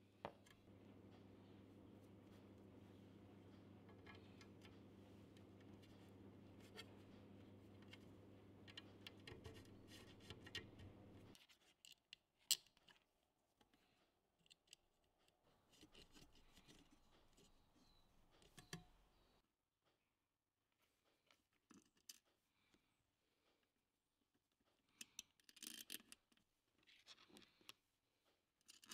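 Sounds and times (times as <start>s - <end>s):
low steady hum: 0.0s - 11.4s.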